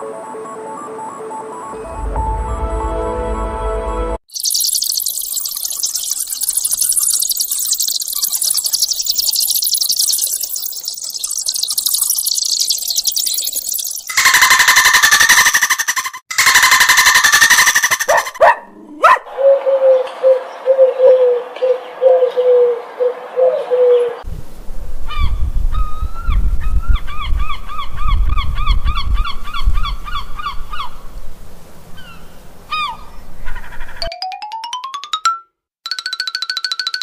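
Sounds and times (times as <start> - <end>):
high squeaky cries: 14.0 - 18.4.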